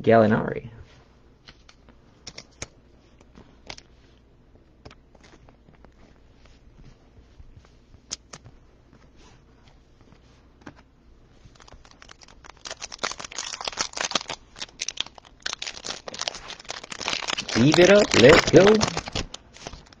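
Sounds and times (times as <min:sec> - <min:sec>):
plastic crinkling and rustling: 0:11.3 - 0:20.0.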